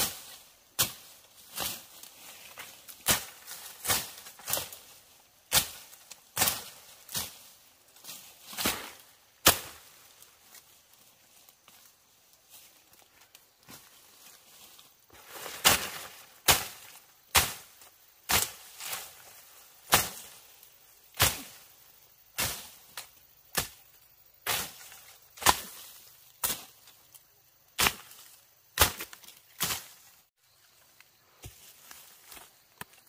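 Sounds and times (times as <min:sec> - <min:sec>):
hand tool chopping: 0:08.5 - 0:09.9, 0:15.6 - 0:17.7, 0:19.9 - 0:20.3, 0:28.8 - 0:29.9.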